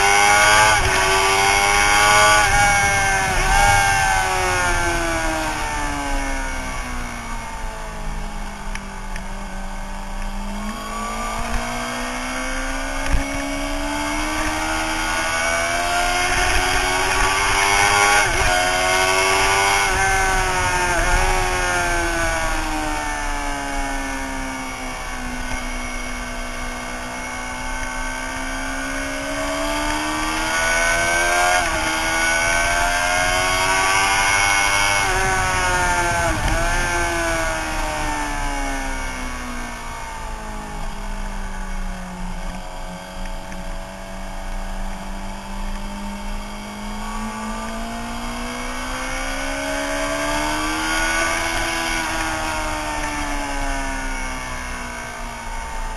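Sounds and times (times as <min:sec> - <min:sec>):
wind rush: 0:00.0 - 0:07.9, 0:12.7 - 0:25.1, 0:30.0 - 0:41.6
motorcycle engine revving: 0:00.0 - 0:55.9.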